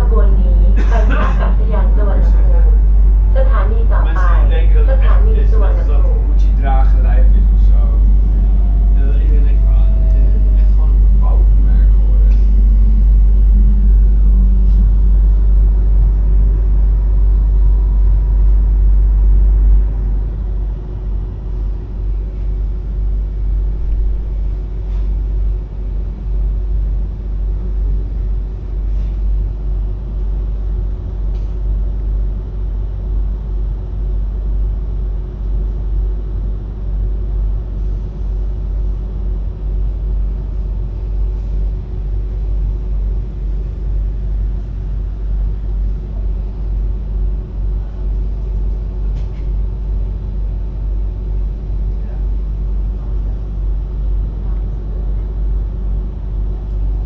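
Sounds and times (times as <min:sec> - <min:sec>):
faint steady hum: 0:00.0 - 0:57.0
train rumbling: 0:00.0 - 0:57.0.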